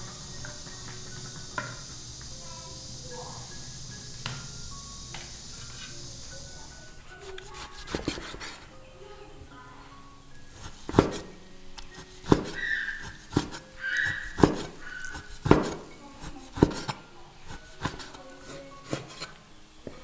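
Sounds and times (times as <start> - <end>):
cleaver chopping on wooden board: 10.6 - 11.3, 12.2 - 17.0, 17.7 - 18.2.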